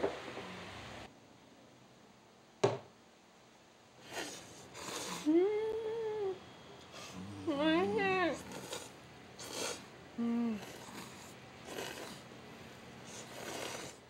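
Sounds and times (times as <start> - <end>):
person humming mmm: 4.1 - 6.4, 7.0 - 8.8, 9.5 - 11.0
noodles slurped: 8.4 - 9.8, 10.5 - 12.3, 13.0 - 14.0.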